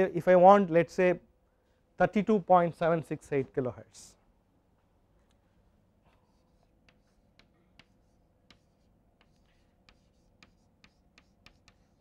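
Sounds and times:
chalk tapping on blackboard: 0:06.3 - 0:12.0.

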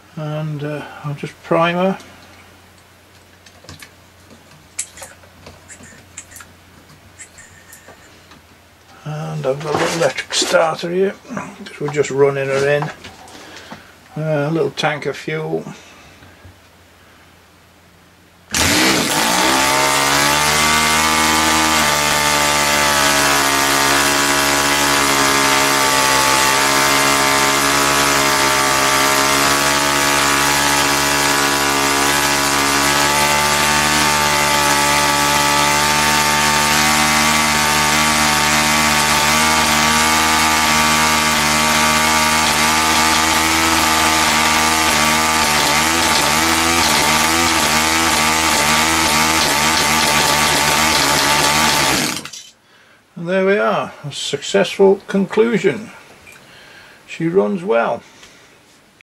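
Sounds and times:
model engine running at high speed: 0:18.5 - 0:52.3
electric starter: 0:18.5 - 0:52.5.

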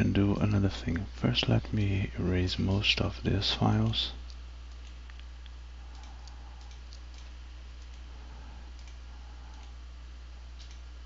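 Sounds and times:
low electrical hum: 0:00.0 - 0:11.0
computer mouse clicks: 0:04.3 - 0:08.0, 0:08.7 - 0:09.8, 0:10.6 - 0:10.8.

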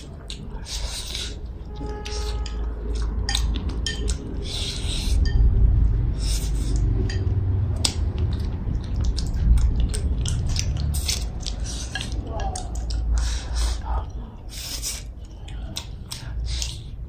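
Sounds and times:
chewing: 0:00.0 - 0:17.0
low hum: 0:00.0 - 0:17.0
chopsticks clicking on porcelain bowl: 0:02.4 - 0:04.3, 0:06.7 - 0:13.2.

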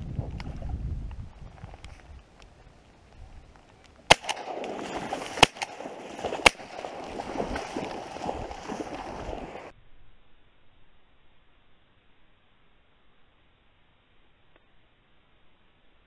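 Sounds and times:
shotgun blasts: 0:04.1 - 0:07.8.

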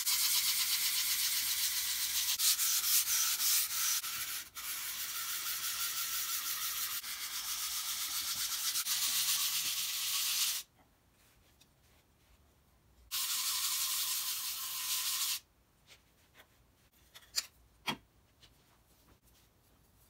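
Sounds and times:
metal scraping on abrasive paper: 0:00.1 - 0:10.7.

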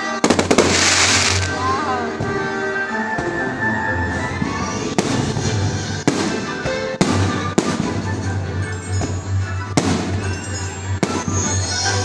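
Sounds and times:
music: 0:00.0 - 0:12.0
firework shells bursting: 0:00.2 - 0:01.6.

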